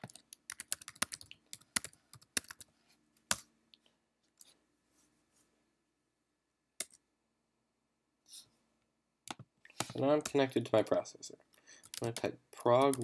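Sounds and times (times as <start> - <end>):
typing on computer keyboard: 0.0 - 2.7, 11.8 - 13.0.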